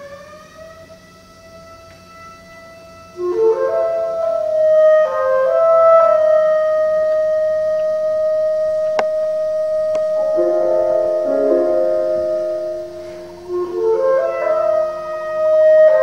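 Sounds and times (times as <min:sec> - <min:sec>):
chamber ensemble music: 0:08.6 - 0:16.0.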